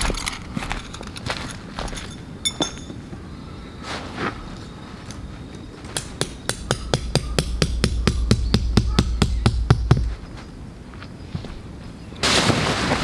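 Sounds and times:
hammer striking tent peg: 6.0 - 10.1.

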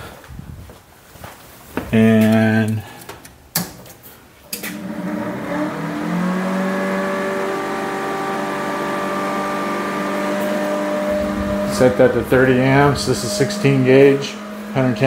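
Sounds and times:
electric motor running up: 4.6 - 15.0.

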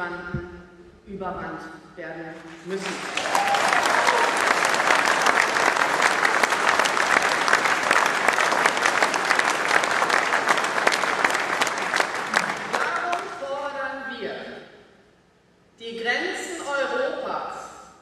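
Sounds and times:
large audience applause: 2.8 - 13.3.

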